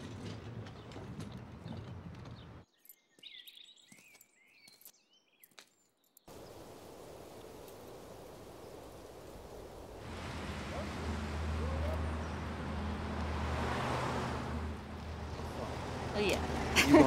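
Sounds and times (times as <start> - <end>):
faint street background: 0.0 - 6.4, 9.7 - 17.0
car driving past: 10.0 - 17.0.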